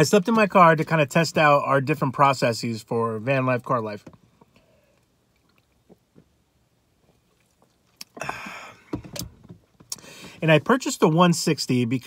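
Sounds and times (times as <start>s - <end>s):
breathy exhale: 8.2s - 9.0s, 10.0s - 10.4s.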